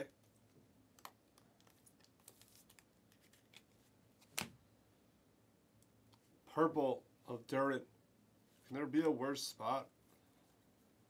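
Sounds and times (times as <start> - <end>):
trading cards rustling and clicking: 0.2 - 4.5
card snapping: 4.2 - 4.5.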